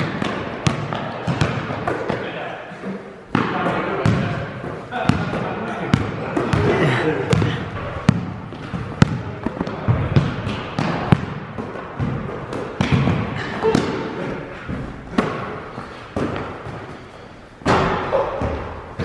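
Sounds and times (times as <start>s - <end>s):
basketball bouncing on gym floor: 0.0s - 2.2s, 3.3s - 14.1s, 17.6s - 19.0s.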